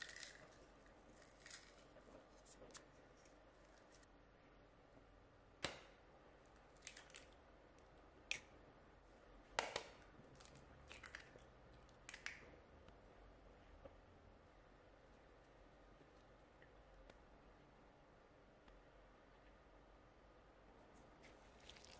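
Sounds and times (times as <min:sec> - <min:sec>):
eggshells tapping and cracking: 0:12.0 - 0:12.5.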